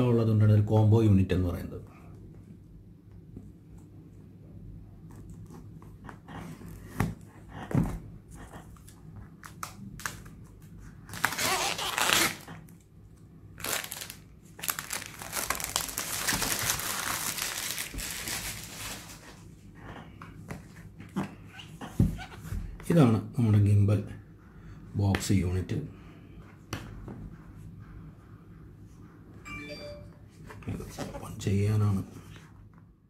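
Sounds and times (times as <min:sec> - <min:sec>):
cardboard crinkling and tearing: 0:11.1 - 0:12.6, 0:13.6 - 0:19.4.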